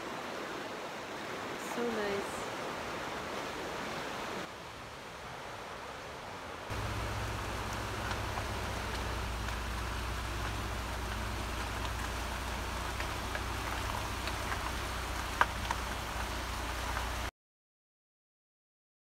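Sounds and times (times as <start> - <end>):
river rushing over rocks: 0.0 - 17.3
water splashing ticks: 6.7 - 17.3.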